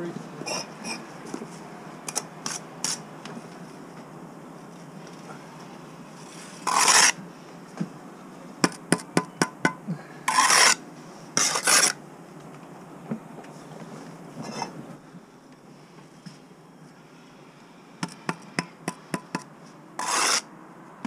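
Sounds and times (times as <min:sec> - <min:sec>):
trowel scraping mortar: 0:02.1 - 0:03.0, 0:06.2 - 0:07.2, 0:10.3 - 0:10.8, 0:11.4 - 0:12.0, 0:20.0 - 0:20.5.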